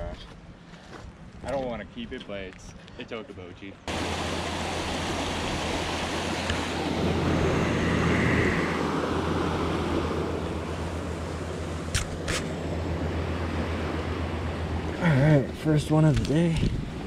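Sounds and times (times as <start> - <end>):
water rushing over rocks: 3.9 - 8.2.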